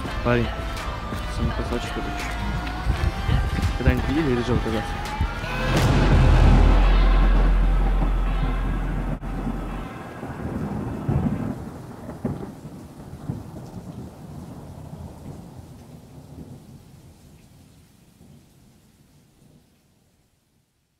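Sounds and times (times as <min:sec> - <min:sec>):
sharp thunder cracks: 0:05.6 - 0:15.0
deep rumble of thunder: 0:05.6 - 0:16.8.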